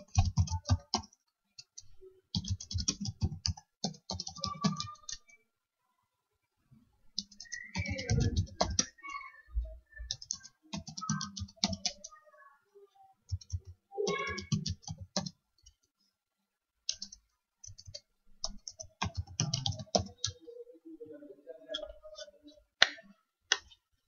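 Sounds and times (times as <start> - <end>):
typing on computer keyboard: 0.0 - 5.3, 7.2 - 9.0, 10.1 - 12.1, 13.3 - 15.4, 16.9 - 20.4.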